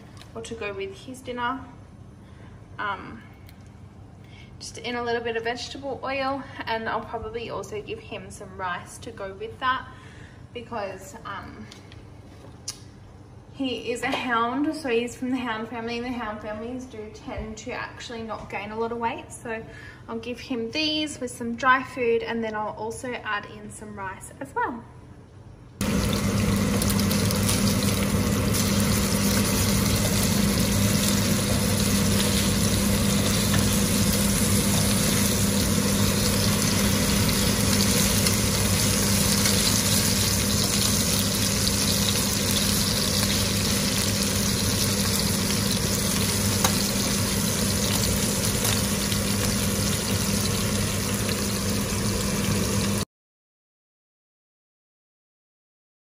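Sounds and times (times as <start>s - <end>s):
constant low hum: 23.5s - 52.2s
chicken frying in a pan: 25.8s - 53.0s.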